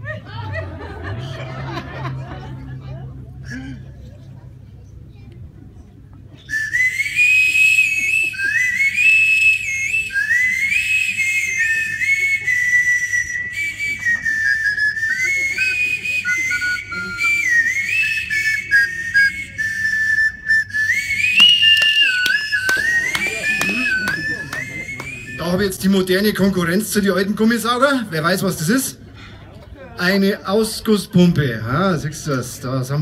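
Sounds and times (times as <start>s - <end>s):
high whistled tune: 6.4s - 25.7s.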